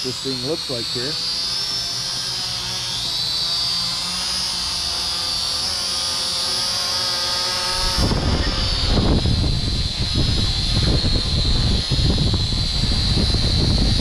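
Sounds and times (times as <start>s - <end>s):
quadcopter high-pitched whine: 0.0s - 14.0s
wind buffeting microphone: 7.7s - 14.0s.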